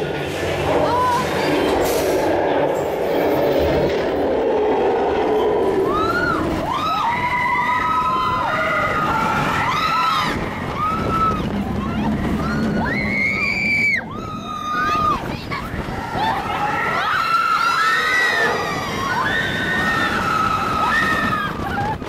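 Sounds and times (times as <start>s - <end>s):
roller coaster rumbling on track: 0.0s - 22.0s
riders screaming: 5.2s - 15.3s, 16.0s - 22.0s.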